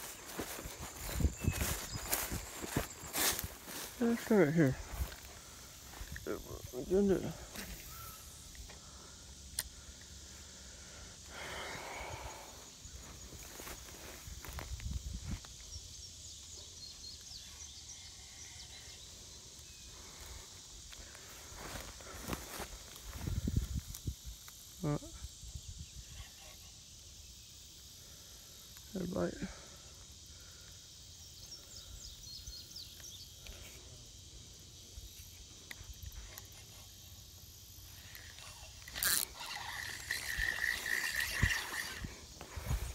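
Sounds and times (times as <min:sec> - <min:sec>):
high insect hiss: 0:00.0 - 0:42.9
faint bird chirps: 0:05.9 - 0:08.9.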